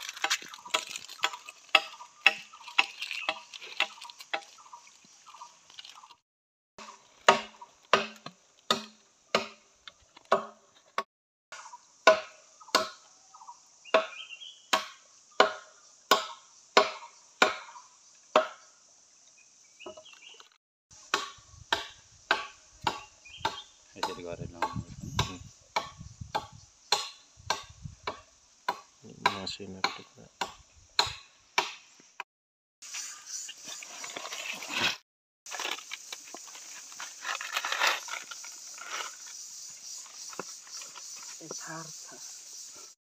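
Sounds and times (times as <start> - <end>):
blade chopping wood: 0.0 - 4.7, 6.8 - 9.6, 10.2 - 11.1, 21.1 - 31.8
constant high hiss: 26.6 - 32.0, 35.5 - 43.0.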